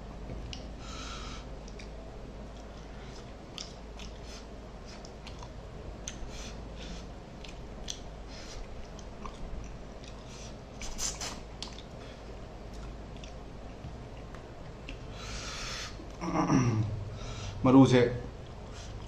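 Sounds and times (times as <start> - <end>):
wet chewing and lip smacking: 0.3 - 0.7, 1.6 - 15.2.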